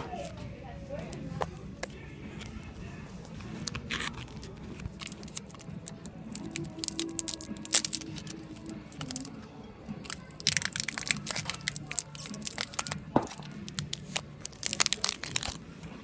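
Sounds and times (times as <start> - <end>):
candy wrapper crackling and crunching: 3.3 - 9.4, 10.0 - 16.0.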